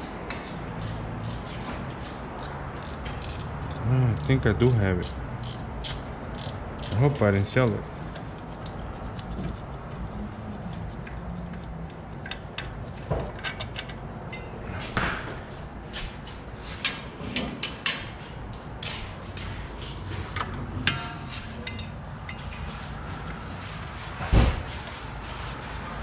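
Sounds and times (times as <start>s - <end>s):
low shop hum: 0.0s - 26.0s
objects knocking and clanking: 12.2s - 15.4s, 20.2s - 22.8s.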